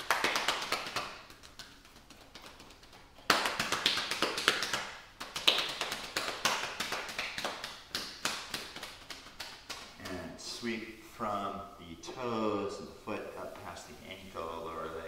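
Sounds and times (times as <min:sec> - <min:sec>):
hands patting thighs: 0:00.0 - 0:10.4.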